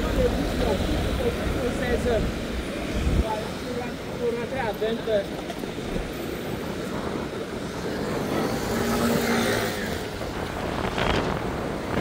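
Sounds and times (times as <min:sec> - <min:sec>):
traffic hum: 0:00.0 - 0:12.0.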